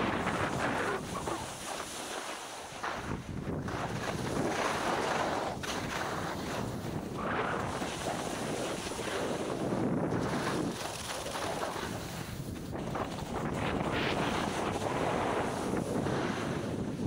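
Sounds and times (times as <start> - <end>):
wind buffeting microphone: 0.0 - 2.2, 2.8 - 17.0
skis hissing over snow: 0.1 - 3.2, 3.8 - 16.8.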